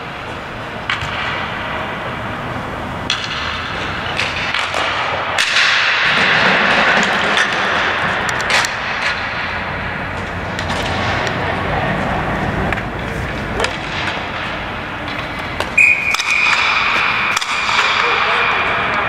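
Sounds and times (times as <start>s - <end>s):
general game noise: 0.0s - 19.0s
ball hitting boards: 13.6s - 18.0s
sticks striking ball: 13.6s - 19.0s.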